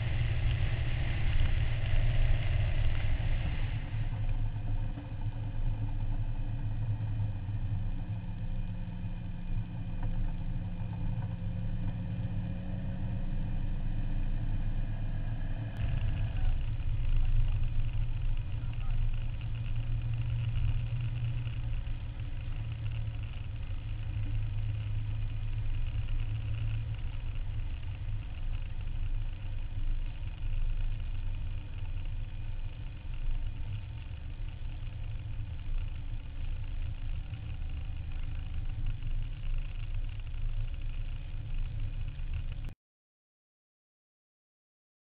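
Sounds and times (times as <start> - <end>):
car engine running steadily: 0.0 - 42.8
road and wind noise: 0.0 - 42.8.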